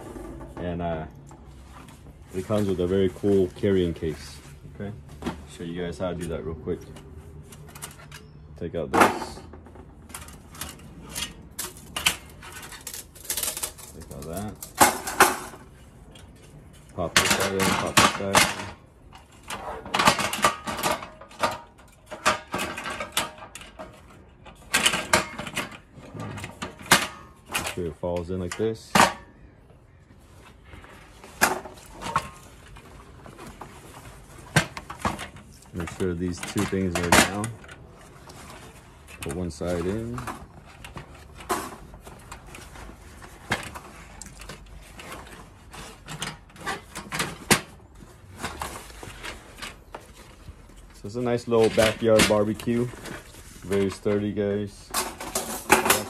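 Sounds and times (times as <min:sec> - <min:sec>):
metal grill parts clanking: 0:07.4 - 0:29.4, 0:34.4 - 0:37.8, 0:51.0 - 0:56.0.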